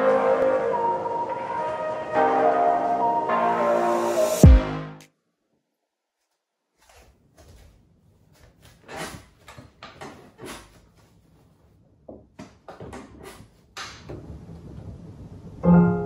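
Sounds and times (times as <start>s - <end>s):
person sitting down on chair: 6.8s - 11.2s.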